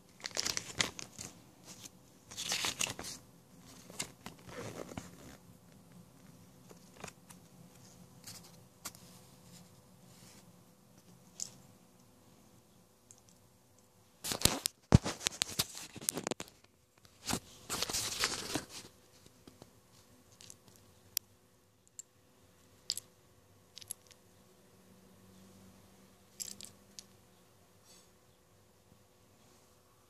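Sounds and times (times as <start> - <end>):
packaging crinkling: 0.1 - 5.4
plastic pieces clicking: 23.8 - 24.2.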